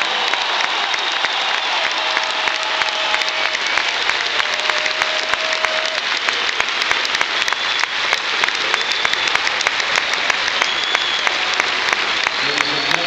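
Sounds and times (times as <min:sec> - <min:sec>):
crowd applauding: 0:00.0 - 0:13.0
whistle-like tones: 0:07.2 - 0:09.7, 0:10.5 - 0:11.4.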